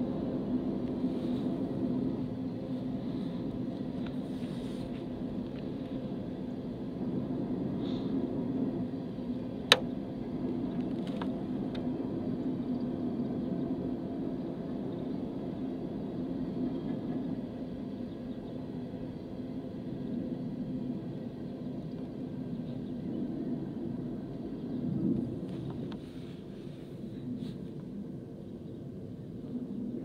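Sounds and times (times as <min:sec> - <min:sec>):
train rumbling past: 0:00.0 - 0:21.3.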